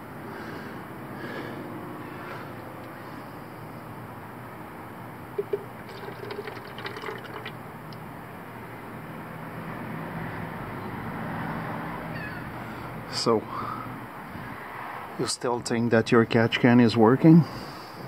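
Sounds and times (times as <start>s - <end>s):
liquid trickling and dripping: 5.4s - 8.0s.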